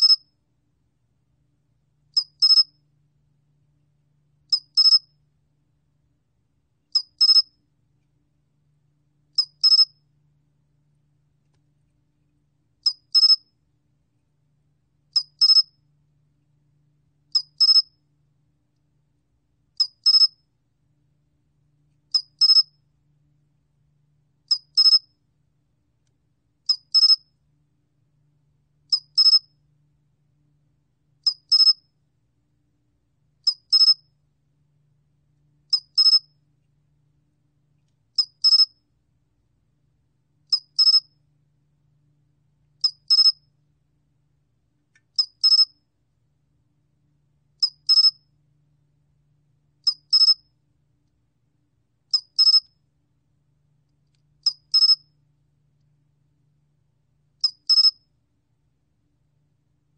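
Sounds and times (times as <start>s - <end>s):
cricket chirping: 7.0s - 7.5s, 9.4s - 9.9s, 33.5s - 34.0s, 35.7s - 36.2s, 38.2s - 38.8s, 40.5s - 41.1s, 42.8s - 43.4s, 45.2s - 45.8s, 47.6s - 48.2s, 49.8s - 50.4s, 52.1s - 52.7s, 54.4s - 55.1s, 57.4s - 58.0s.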